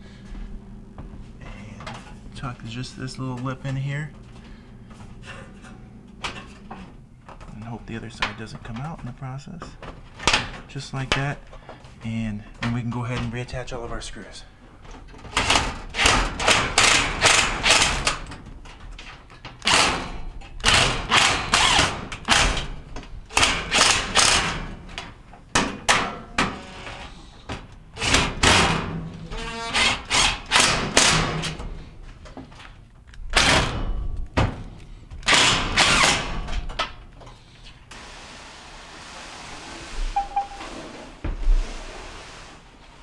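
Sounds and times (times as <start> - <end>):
cordless drill driving screws: 20.6 - 22.4.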